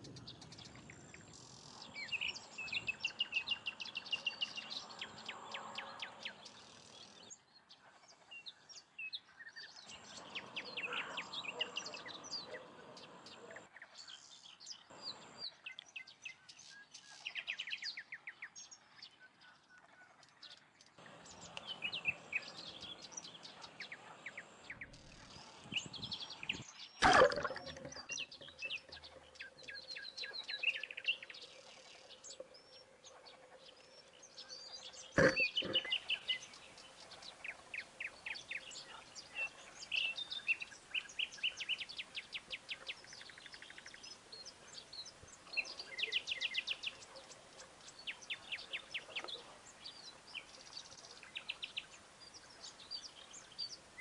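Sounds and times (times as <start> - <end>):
songbirds chirping and trilling: 0.0 - 54.0.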